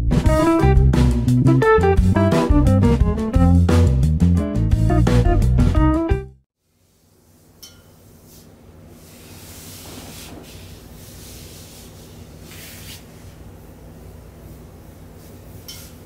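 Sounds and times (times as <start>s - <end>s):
hands brushing over clothing: 6.8s - 16.0s.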